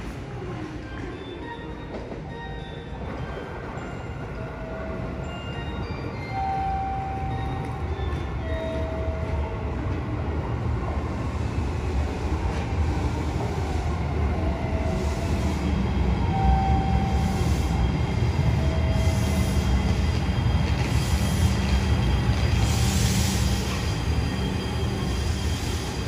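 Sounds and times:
train wheels rumbling on rail: 0.0 - 26.0
hiss: 22.6 - 24.0.

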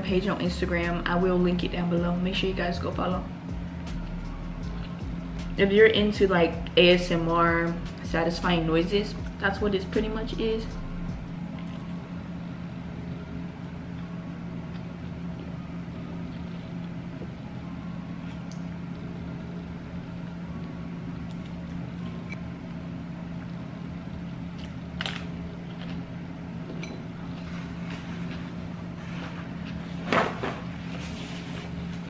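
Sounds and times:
low hum: 0.0 - 32.0
rustling noise: 27.6 - 32.0.

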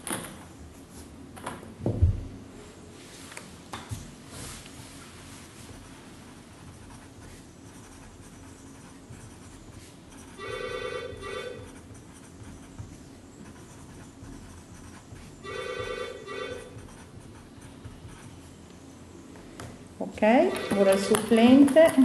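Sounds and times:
pen writing on paper: 6.6 - 10.6, 11.2 - 18.4
telephone ringing with electronic trill: 10.4 - 11.7, 15.4 - 16.8, 20.5 - 21.0.

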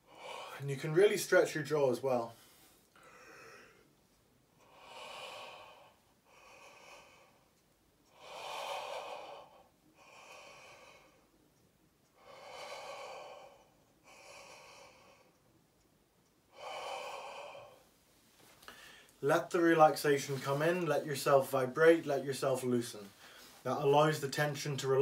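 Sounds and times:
man breathing deeply: 0.0 - 0.7, 2.3 - 4.0, 4.6 - 11.4, 12.1 - 15.4, 16.5 - 17.9, 18.6 - 19.2.

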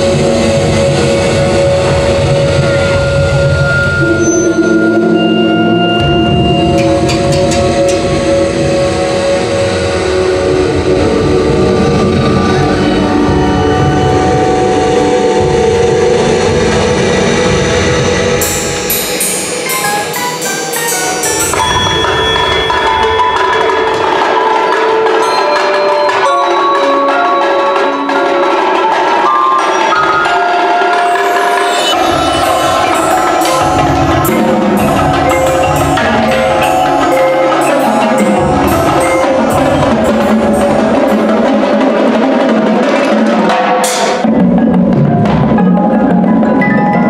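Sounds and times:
percussion ensemble droning: 0.0 - 47.0
marimbas and vibraphones playing: 2.6 - 9.1, 18.4 - 42.7, 44.3 - 47.0
sharp metallic strikes: 3.6 - 9.2, 18.3 - 26.4, 30.9 - 42.4.

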